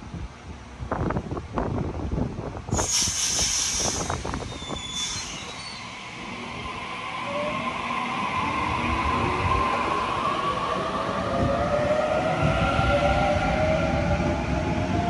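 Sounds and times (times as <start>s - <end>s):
air hiss: 2.7s - 5.9s.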